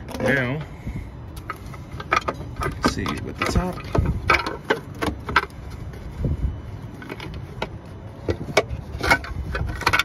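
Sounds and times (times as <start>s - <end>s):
plastic parts clicking and knocking: 1.4s - 5.6s, 7.0s - 10.0s.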